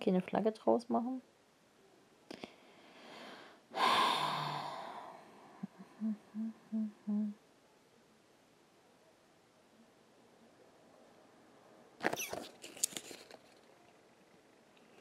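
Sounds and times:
woman breathing and sighing: 2.3 - 7.4
woman humming: 3.8 - 7.4.

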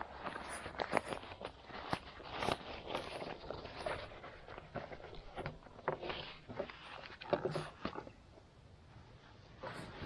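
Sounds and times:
bag rustling and scraping: 0.0 - 7.9.

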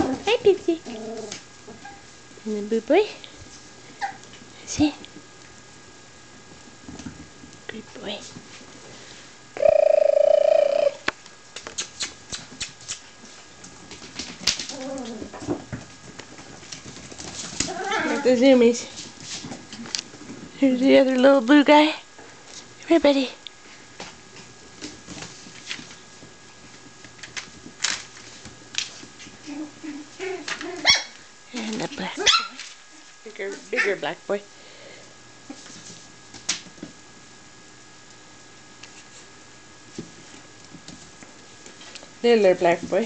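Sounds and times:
puppy claws clicking on floor: 11.6 - 18.3
puppy whining: 14.7 - 15.5, 17.6 - 18.4.

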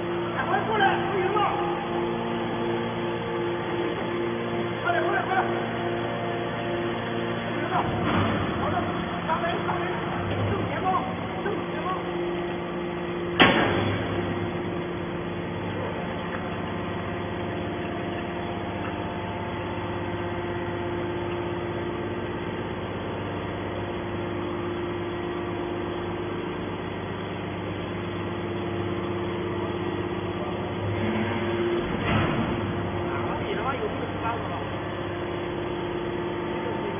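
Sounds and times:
hydraulic pump and motor hum: 0.0 - 36.9
sharp bang: 13.4 - 14.1.

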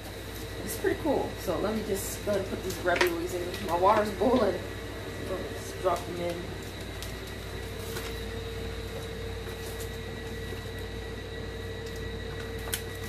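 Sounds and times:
steady hum with hiss: 0.0 - 13.0.

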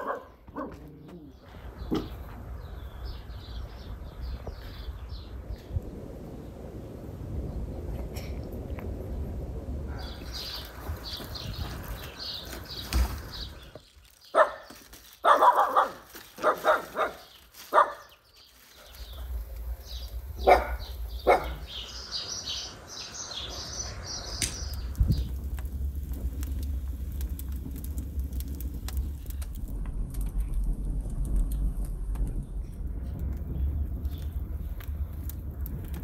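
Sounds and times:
dog barking: 0.0 - 0.9, 9.9 - 10.2, 14.3 - 18.1, 20.4 - 21.7
small birds chirping: 0.0 - 6.6, 9.9 - 29.6, 32.4 - 35.6
low wind rumble: 1.2 - 15.8, 16.4 - 36.0.

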